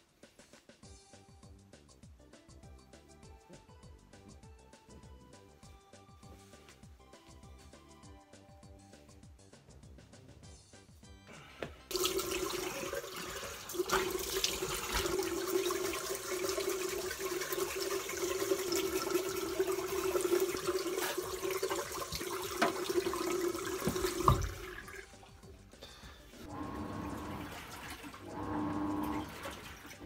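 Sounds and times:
tap water running into basin: 0:11.9 - 0:25.3, 0:26.4 - 0:30.0.

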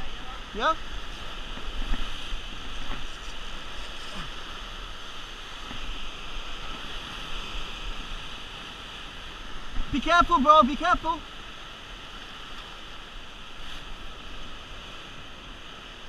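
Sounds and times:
wind rumbling on microphone: 0:00.0 - 0:10.1.

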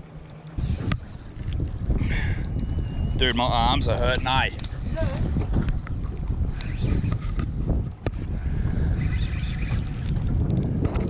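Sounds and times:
wind on microphone: 0:00.0 - 0:11.0
fishing reel ratcheting: 0:00.6 - 0:02.0, 0:04.1 - 0:10.7.

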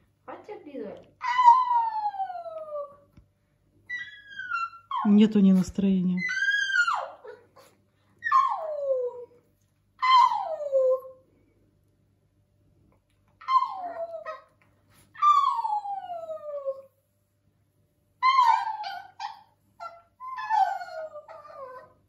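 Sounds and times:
small dog howling: 0:01.2 - 0:03.1, 0:06.2 - 0:07.5, 0:08.2 - 0:09.4, 0:10.0 - 0:11.2, 0:13.4 - 0:14.6, 0:15.2 - 0:17.0, 0:18.2 - 0:22.0.

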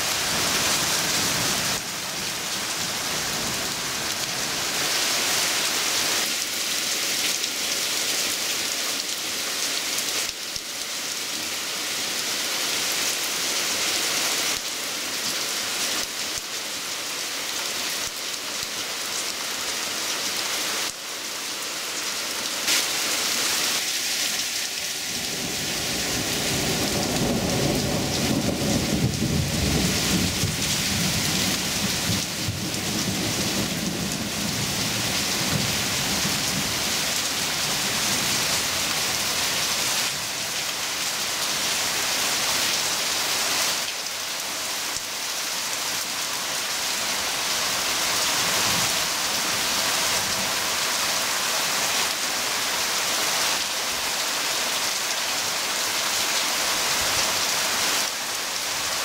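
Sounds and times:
heavy rain on foliage: 0:00.0 - 0:59.0
thunder rumbling: 0:25.1 - 0:36.7.

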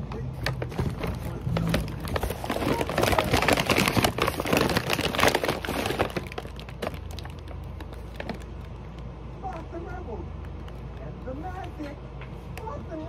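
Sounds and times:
combs and bottles clattering: 0:00.4 - 0:08.4.

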